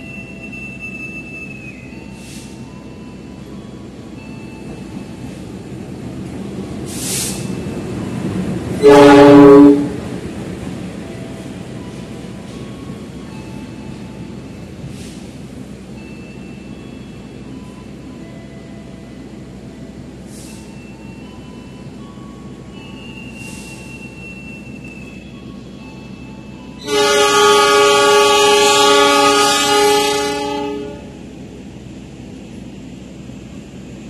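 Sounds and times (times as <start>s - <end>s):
train squeals and hisses: 0.0s - 5.7s, 6.4s - 10.0s, 11.1s - 31.2s
train rolling rumble: 0.0s - 34.0s
train horn blast: 8.8s - 10.0s, 26.8s - 31.2s.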